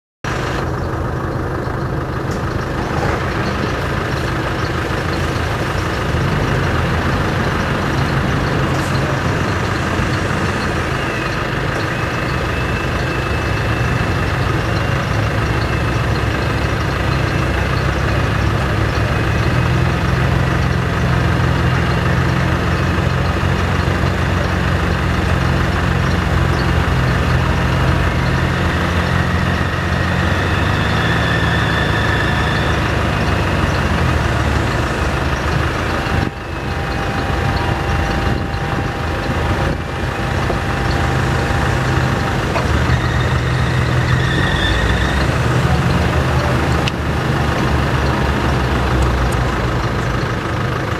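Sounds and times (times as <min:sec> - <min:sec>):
engines running steadily: 0:00.2 - 0:50.9.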